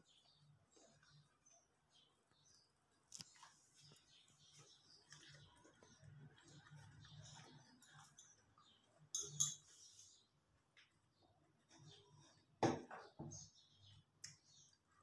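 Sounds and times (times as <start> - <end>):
metal spoon clinking on glass: 9.1 - 9.8.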